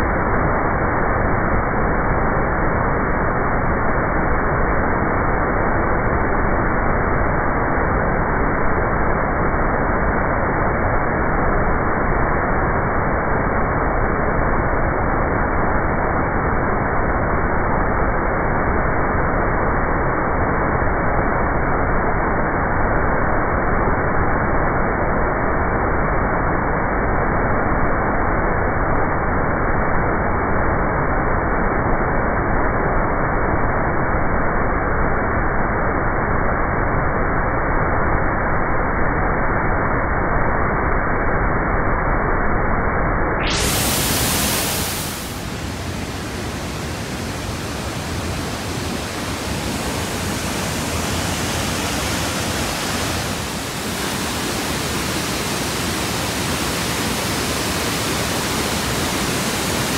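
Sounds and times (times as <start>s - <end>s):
waterfall roaring: 43.5s - 59.9s.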